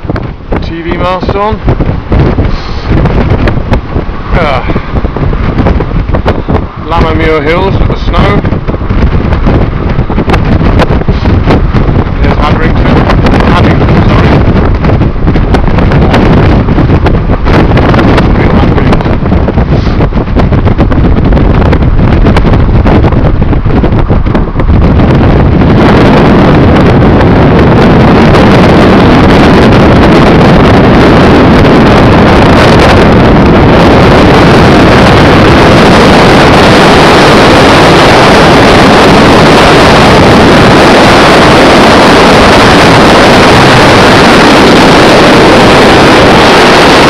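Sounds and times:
wind buffeting microphone: 0:00.0 - 0:47.0.

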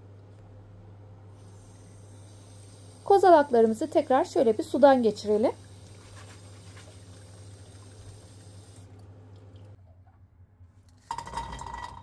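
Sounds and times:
tap water running: 0:01.4 - 0:09.8
pine cones clattering into pot: 0:11.0 - 0:12.0.

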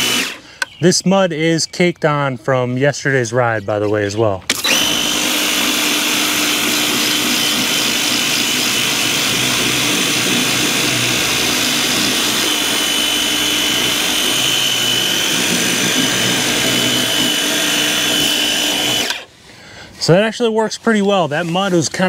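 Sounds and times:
pump whine: 0:00.0 - 0:00.7, 0:04.5 - 0:19.3.

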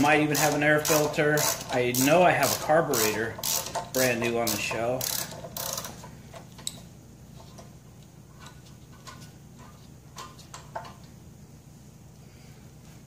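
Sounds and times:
metallic clicks of wrench: 0:00.3 - 0:06.8.

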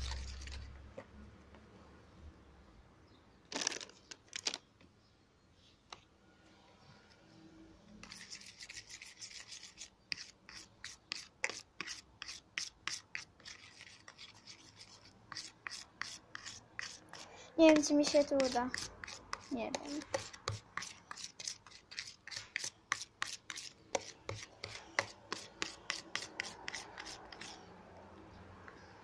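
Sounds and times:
spoon scraping plastic tub: 0:00.0 - 0:01.1.

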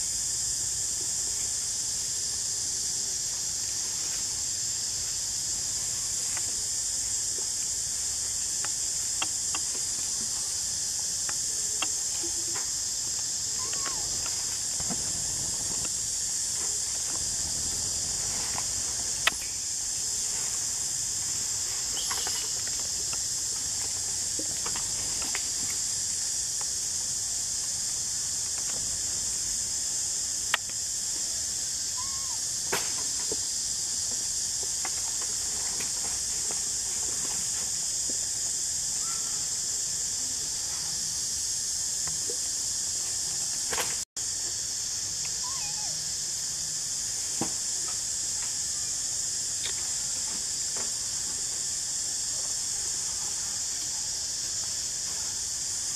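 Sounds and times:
high-pitched insect chorus: 0:00.0 - 0:55.9.

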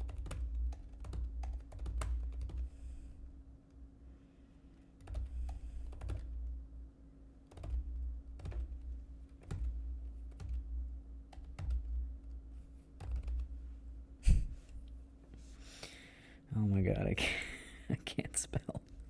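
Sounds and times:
typing on computer keyboard: 0:00.0 - 0:02.7, 0:05.0 - 0:06.4, 0:07.5 - 0:10.6, 0:11.3 - 0:12.0, 0:13.0 - 0:13.6
low steady hum: 0:00.0 - 0:19.0.

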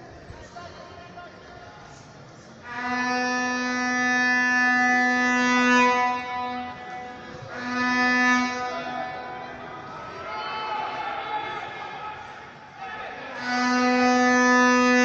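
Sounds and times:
horn notes: 0:02.6 - 0:10.3, 0:13.1 - 0:15.0.

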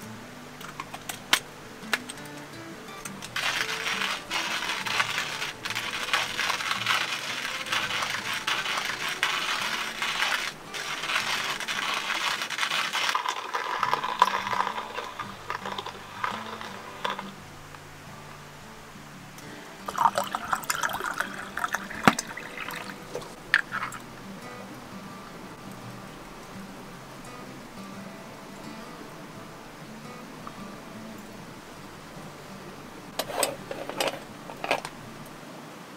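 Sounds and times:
coffee grinder grinding beans: 0:03.0 - 0:17.4, 0:19.8 - 0:24.1, 0:33.2 - 0:35.0
coffee pouring: 0:03.0 - 0:17.4, 0:19.8 - 0:24.4, 0:33.1 - 0:35.0.

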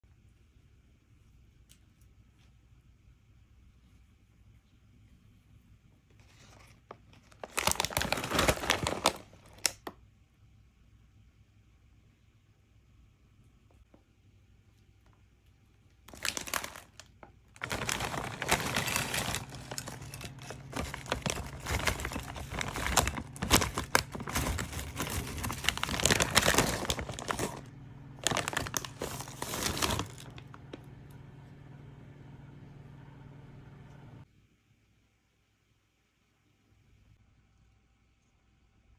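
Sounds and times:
faint low hum: 0:00.0 - 0:38.9
chip bag crinkling: 0:06.2 - 0:09.9, 0:16.0 - 0:31.0
chips rattling into a bowl: 0:16.1 - 0:30.5.

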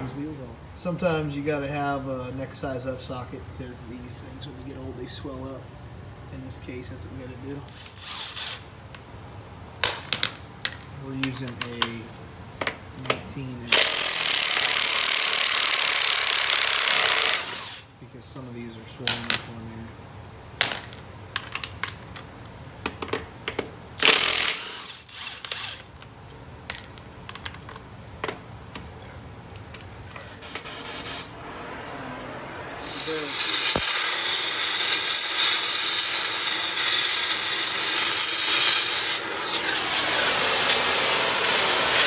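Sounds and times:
impact wrench bursts: 0:07.7 - 0:08.7, 0:13.7 - 0:17.9, 0:24.0 - 0:25.9, 0:32.8 - 0:42.0
cutting torch hissing: 0:30.1 - 0:42.0.

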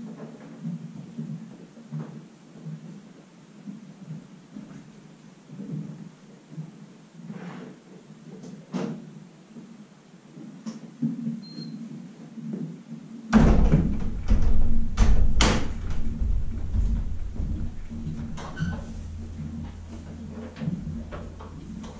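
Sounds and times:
loud low rumble: 0:13.4 - 0:21.9
sharp wooden bangs: 0:13.4 - 0:21.9
wooden knocks: 0:13.4 - 0:21.9.

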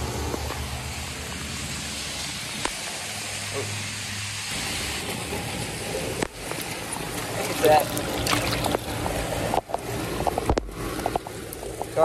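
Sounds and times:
heavy rain hissing: 0:00.0 - 0:08.1
air-conditioner condenser hum: 0:04.6 - 0:12.0.

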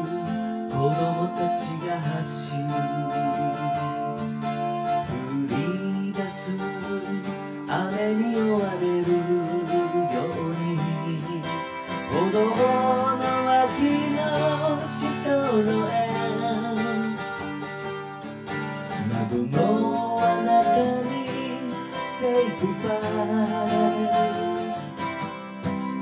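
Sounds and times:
person singing: 0:00.0 - 0:18.0, 0:18.9 - 0:26.0
acoustic guitar strummed and picked: 0:00.0 - 0:26.0.

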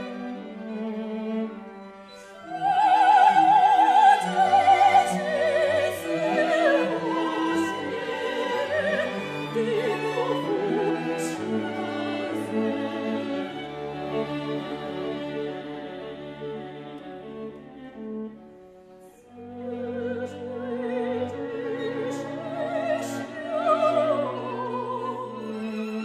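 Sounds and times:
string quartet playing: 0:00.0 - 0:26.0
soprano singing with vibrato: 0:02.2 - 0:14.6, 0:19.6 - 0:26.0.

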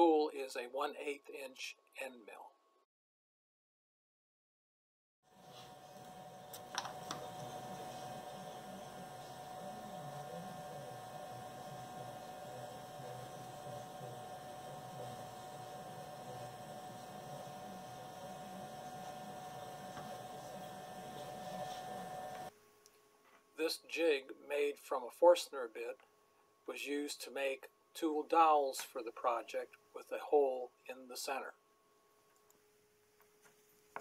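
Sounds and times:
machine hum with high tone: 0:05.3 - 0:22.6.

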